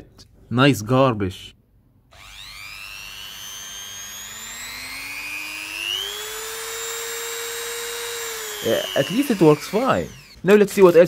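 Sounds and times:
rotary tool motor whine: 0:02.1 - 0:10.9.

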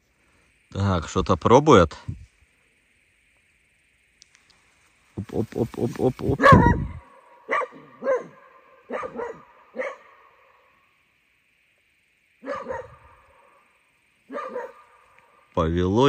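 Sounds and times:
dog barking: 0:06.4 - 0:10.4, 0:12.4 - 0:13.2, 0:14.3 - 0:15.0.

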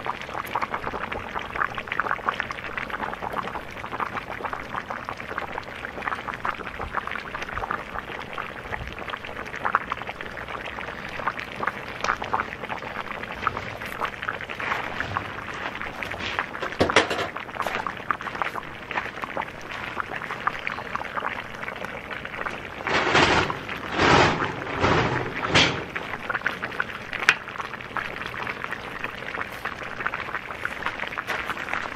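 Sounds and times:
meat juices sizzling: 0:05.4 - 0:25.0.

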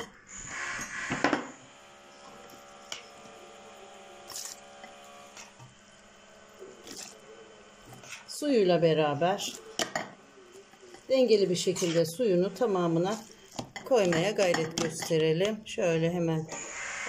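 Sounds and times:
faint steady hum: 0:00.0 - 0:17.0
spoon scraping metal pot: 0:10.8 - 0:15.3.

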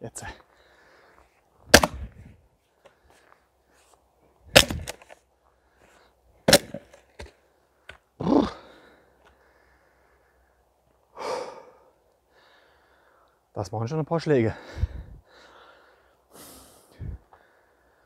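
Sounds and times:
log splitting and falling: 0:01.7 - 0:02.2, 0:04.5 - 0:05.2, 0:06.5 - 0:08.0
maul striking wood: 0:01.7 - 0:02.2, 0:04.5 - 0:05.0, 0:06.5 - 0:07.3.

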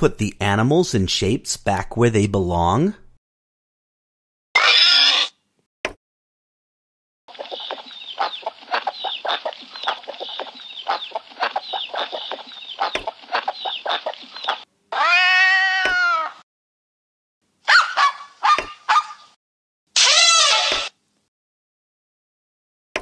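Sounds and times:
cartoon birds clucking: 0:07.3 - 0:15.2, 0:17.7 - 0:19.4
cat meow: 0:14.9 - 0:16.4, 0:20.0 - 0:20.9.

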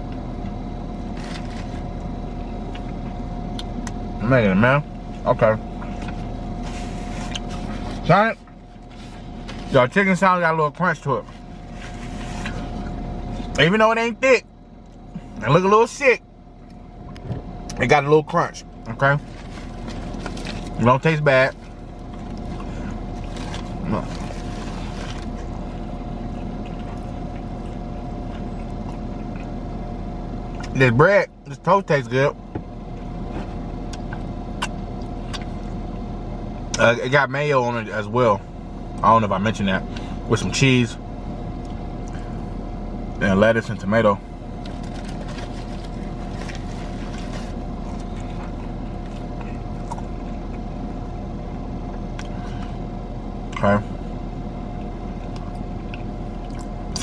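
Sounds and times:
car engine humming in cabin: 0:00.0 - 0:57.0
biting and chewing: 0:00.1 - 0:04.0, 0:19.2 - 0:20.8, 0:21.5 - 0:29.6, 0:44.6 - 0:50.7, 0:54.7 - 0:57.0
foil wrapper crinkling: 0:19.2 - 0:20.8, 0:21.5 - 0:25.5, 0:44.6 - 0:48.5
faint chewing: 0:26.2 - 0:29.5.

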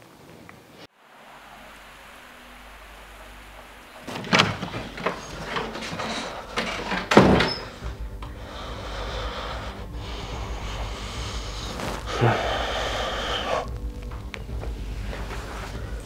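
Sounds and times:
door banging shut: 0:04.0 - 0:08.0.

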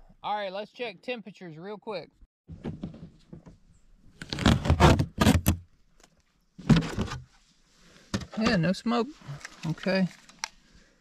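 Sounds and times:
camera handling rubbing and scraping: 0:09.3 - 0:10.6.

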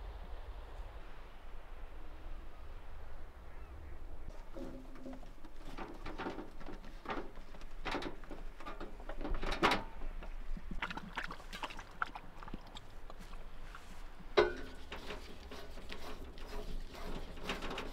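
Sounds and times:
metal camp stove clattering: 0:04.3 - 0:11.0, 0:14.2 - 0:17.9.

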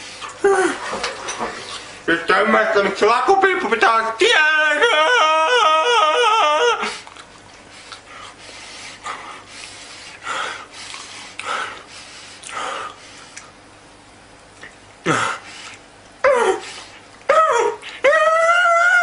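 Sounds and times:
man wailing: 0:04.2 - 0:07.0, 0:16.2 - 0:16.6, 0:17.3 - 0:19.0
heavy breaths: 0:07.7 - 0:13.6, 0:15.0 - 0:17.1.

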